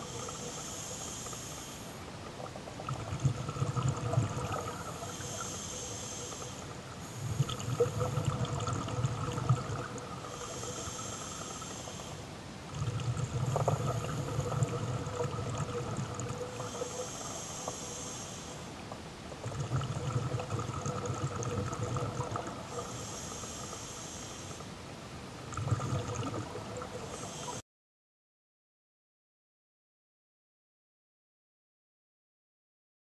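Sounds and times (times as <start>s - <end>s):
hissing regulator inhalation: 0.0s - 2.0s, 3.8s - 8.7s, 9.3s - 12.2s, 13.3s - 18.7s, 22.0s - 24.7s, 27.0s - 27.6s
bubbling exhalation: 2.7s - 5.5s, 7.2s - 11.1s, 12.7s - 17.0s, 19.4s - 22.8s, 25.5s - 27.0s.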